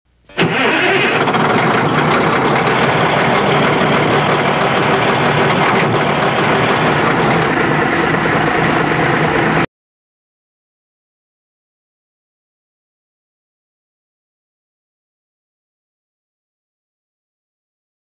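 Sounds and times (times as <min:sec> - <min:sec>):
engine running steadily: 0:00.1 - 0:09.7.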